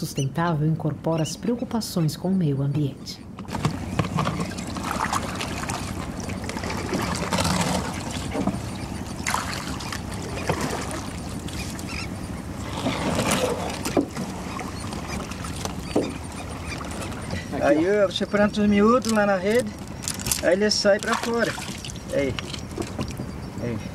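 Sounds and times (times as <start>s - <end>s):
wet knocks and scrapes: 3.4s - 11.9s, 12.6s - 17.5s, 21.0s - 23.2s
water splashing and streaming: 3.5s - 17.6s, 19.0s - 23.2s.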